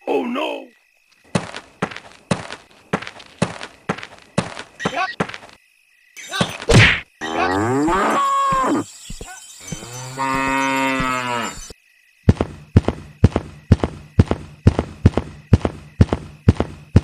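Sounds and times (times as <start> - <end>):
footstep clicks: 1.1 - 5.6, 12.3 - 17.0
cattle mooing: 9.8 - 11.7.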